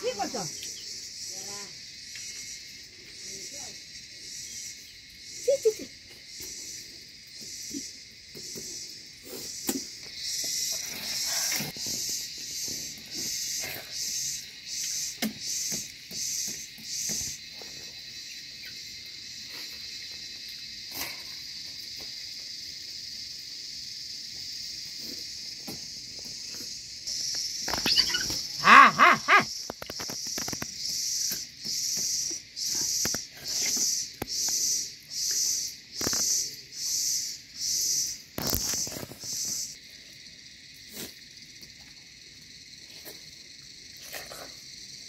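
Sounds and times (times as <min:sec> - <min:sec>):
loud animal cry: 0:27.7 - 0:29.5.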